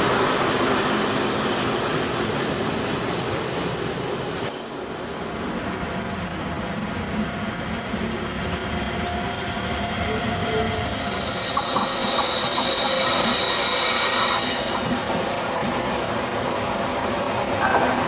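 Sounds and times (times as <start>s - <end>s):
train rumble: 0.0s - 18.0s
train wheels squealing: 10.4s - 15.0s.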